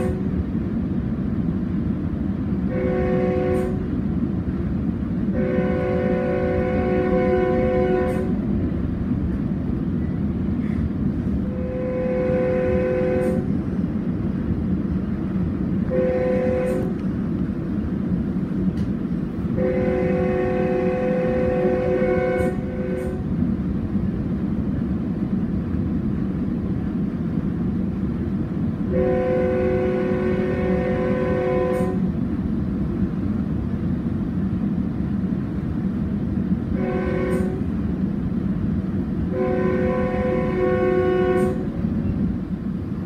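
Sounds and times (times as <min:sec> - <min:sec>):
train air horn: 0:00.0 - 0:00.4, 0:02.6 - 0:03.9, 0:05.3 - 0:08.5, 0:11.4 - 0:13.6, 0:15.8 - 0:17.0, 0:19.5 - 0:23.4, 0:28.9 - 0:32.2, 0:36.7 - 0:37.7, 0:39.2 - 0:41.8
train rumbling: 0:00.0 - 0:43.0.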